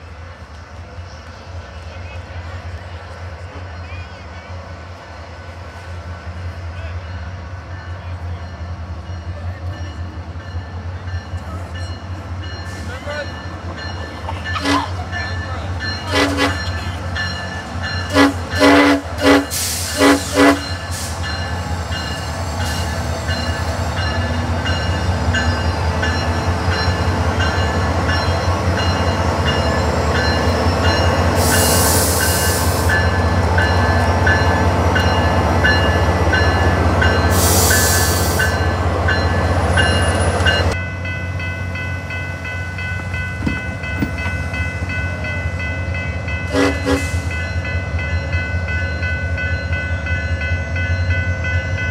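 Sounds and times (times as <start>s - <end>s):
locomotive horn blasts: 14.5s - 15.0s, 16.0s - 16.8s, 18.0s - 20.9s, 46.5s - 47.4s
air hissing: 31.4s - 33.0s, 37.3s - 38.6s.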